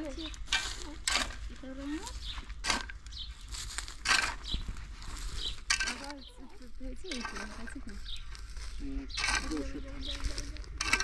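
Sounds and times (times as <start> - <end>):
spade digging gravelly soil: 0.0 - 11.0
person speaking: 8.7 - 11.0.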